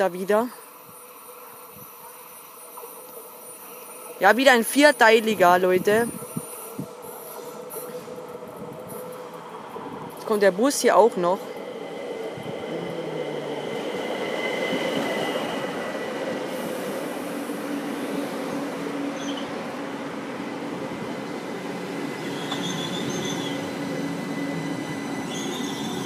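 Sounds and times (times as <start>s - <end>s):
train wheels rumbling on rails: 1.4s - 26.0s
wheel and brake squeals: 19.2s - 19.6s, 22.2s - 26.0s.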